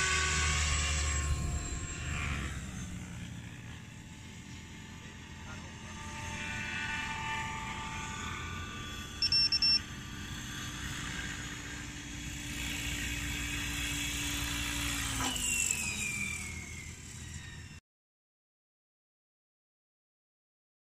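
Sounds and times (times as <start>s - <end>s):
model helicopter rotor and motor: 0.0s - 17.8s
high electronic beeps: 9.2s - 9.8s.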